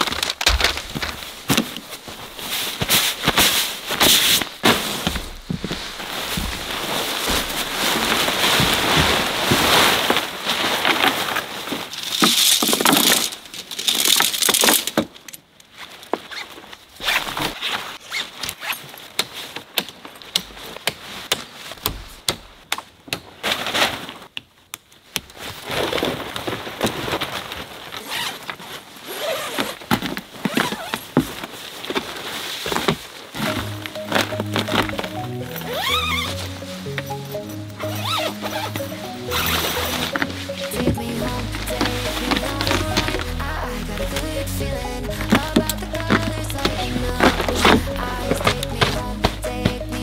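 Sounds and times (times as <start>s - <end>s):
clicks and knocks: 0.0s - 1.8s
nylon tent fabric rustling: 0.0s - 14.8s, 15.5s - 22.6s, 23.3s - 24.4s, 25.3s - 50.0s.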